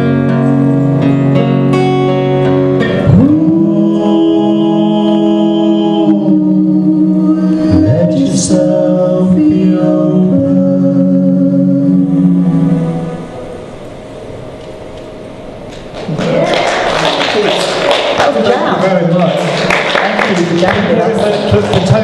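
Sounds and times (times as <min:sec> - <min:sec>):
strummed acoustic guitar: 0:00.0 - 0:06.0.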